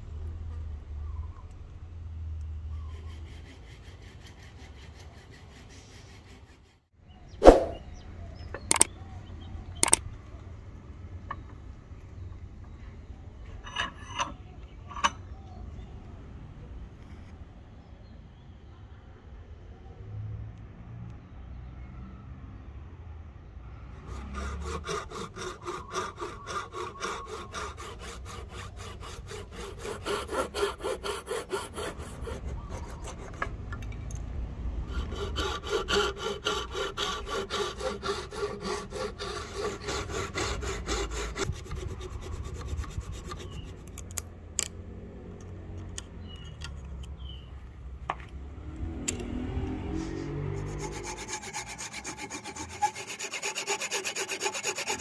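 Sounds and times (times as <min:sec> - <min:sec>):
hand saw cutting wood: 0:02.8 - 0:06.8, 0:07.4 - 0:07.8, 0:08.6 - 0:08.9, 0:24.0 - 0:33.6, 0:34.8 - 0:44.1, 0:49.9 - 0:55.0.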